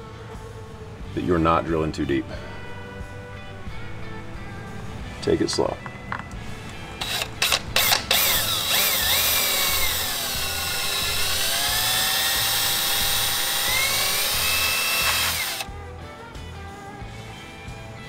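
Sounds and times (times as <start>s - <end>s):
cordless drill motor whine: 7.0s - 15.7s
drill trigger blips: 7.0s - 15.7s.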